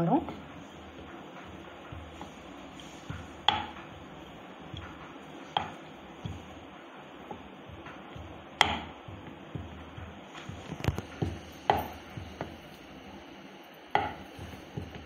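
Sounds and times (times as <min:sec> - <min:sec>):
rolling pin knocking on wooden board: 0:00.2 - 0:12.6, 0:13.9 - 0:15.0.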